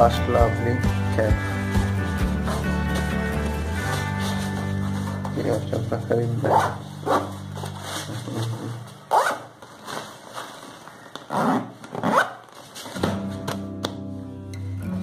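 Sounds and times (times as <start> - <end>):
backpack zipper pulled shut: 9.1 - 9.5, 11.3 - 12.4.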